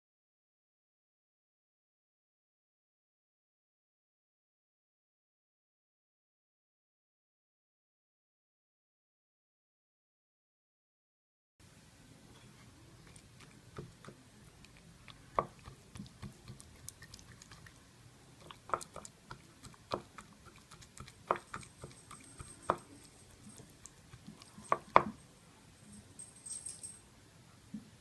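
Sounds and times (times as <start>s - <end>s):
knife tapping cutting board: 18.6s - 20.2s, 21.0s - 22.9s, 24.6s - 25.2s.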